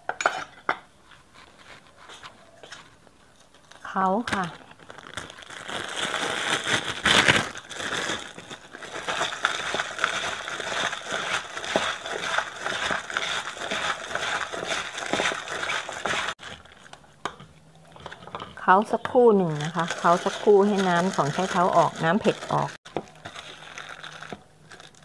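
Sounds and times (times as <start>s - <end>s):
plastic bag crinkling: 3.6s - 17.1s, 19.3s - 25.0s
radish and salt crunching in bowl: 4.4s - 17.0s, 18.9s - 25.0s.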